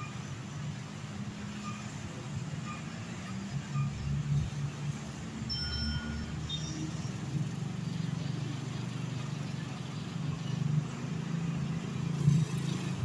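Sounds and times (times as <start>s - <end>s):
motor vehicles passing: 0.0s - 13.0s
motorcycles passing: 4.3s - 13.0s.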